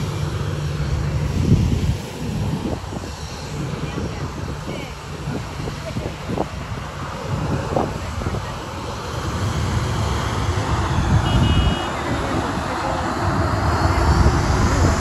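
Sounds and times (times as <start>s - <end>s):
engine low rumble: 0.0s - 15.0s
short beep: 11.2s - 11.9s.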